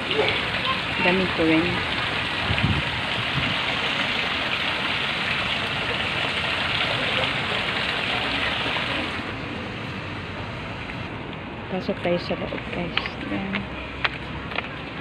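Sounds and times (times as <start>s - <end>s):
fountain water splashing into pool: 0.0s - 11.0s.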